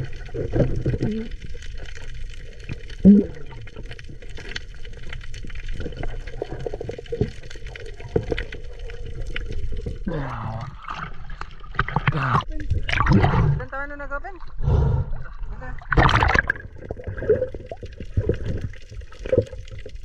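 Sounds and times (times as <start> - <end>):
bubbling gurgles: 0.0 - 13.7, 14.4 - 20.0
muffled underwater rumble: 0.0 - 20.0
crackling clicks: 0.3 - 10.0.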